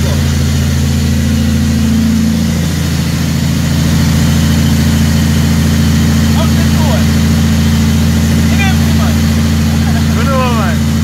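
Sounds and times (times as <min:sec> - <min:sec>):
truck diesel engine from cab: 0:00.0 - 0:11.0.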